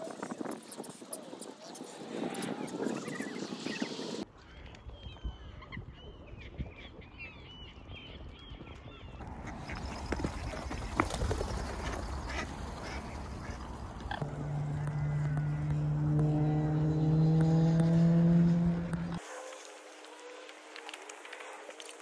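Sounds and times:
wind rumble on microphone: 0:00.0 - 0:16.8.

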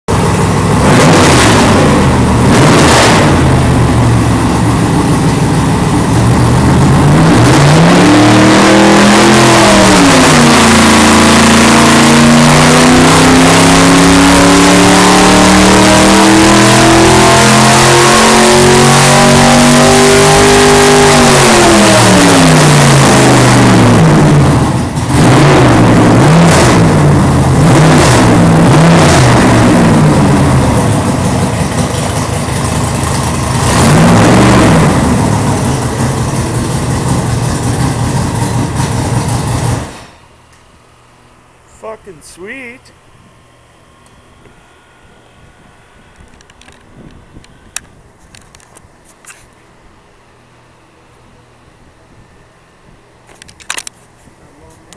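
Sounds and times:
race engine revving: 0:00.1 - 0:40.0.

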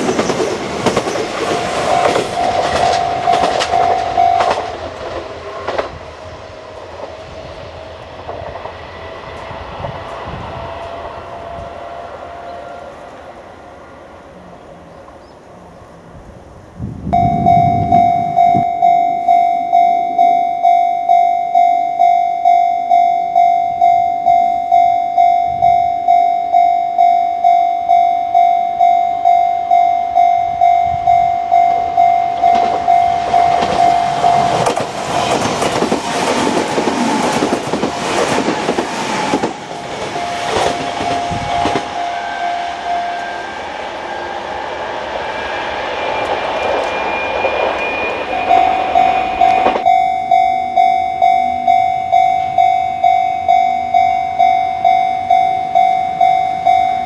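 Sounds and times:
level-crossing alarm bell ringing: 0:00.0 - 0:05.0, 0:17.1 - 0:57.0
wheels clacking over rail joints: 0:00.0 - 0:07.3, 0:31.1 - 0:43.3, 0:46.2 - 0:50.0
train wheels rushing on rails: 0:00.0 - 0:14.4, 0:30.6 - 0:57.0.

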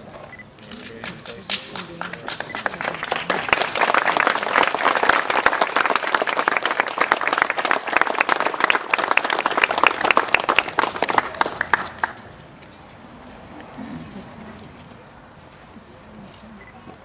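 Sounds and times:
crowd applauding: 0:00.7 - 0:12.3.

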